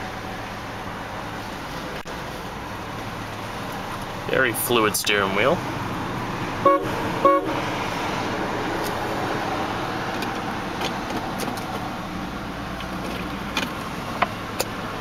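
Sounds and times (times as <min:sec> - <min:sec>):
car engine idling: 0:00.0 - 0:15.0
car horn toot: 0:06.6 - 0:07.6.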